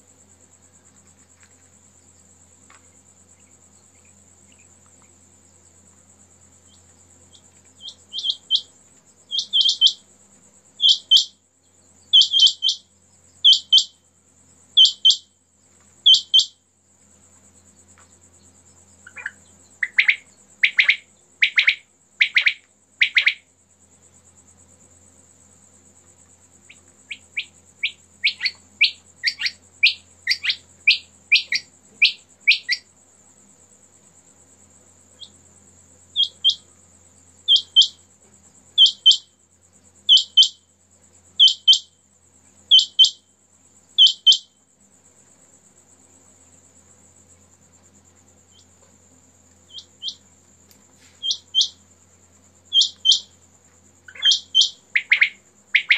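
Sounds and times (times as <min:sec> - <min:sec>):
quail calling: 0:09.3 - 0:10.0, 0:12.2 - 0:12.8, 0:19.1 - 0:23.4, 0:52.7 - 0:53.2, 0:54.1 - 0:55.9.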